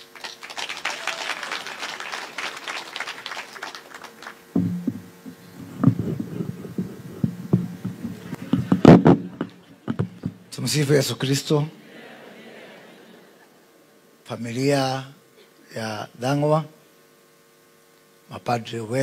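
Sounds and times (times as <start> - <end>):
audience clapping: 0.0 - 10.0
steady hum: 0.0 - 19.0
microphone knocks and thumps: 4.5 - 10.5.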